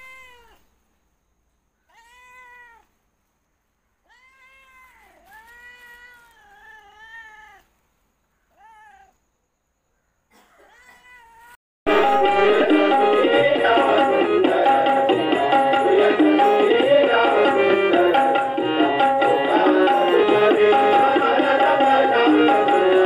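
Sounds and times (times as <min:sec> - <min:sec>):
cat meowing: 0:00.0 - 0:00.7, 0:01.8 - 0:03.0, 0:04.0 - 0:07.7, 0:08.4 - 0:09.2, 0:10.6 - 0:11.6.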